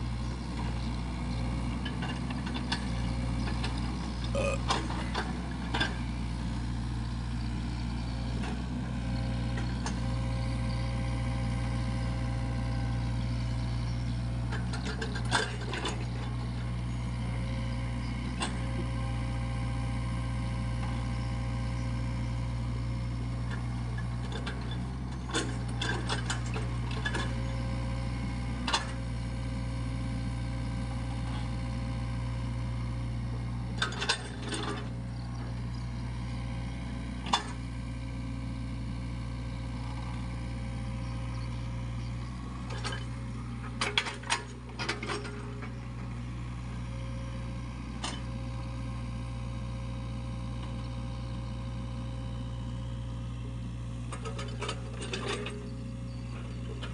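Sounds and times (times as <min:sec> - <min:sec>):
diesel engine running: 0:00.0 - 0:56.9
metallic clanks of excavator bucket: 0:33.8 - 0:34.9, 0:43.7 - 0:45.8, 0:54.1 - 0:55.7.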